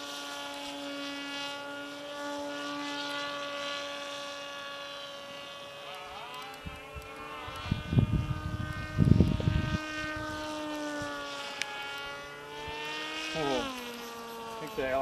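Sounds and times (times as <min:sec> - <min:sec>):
model airplane motor whining: 0:00.0 - 0:15.0
low rumble on microphone: 0:07.5 - 0:11.2.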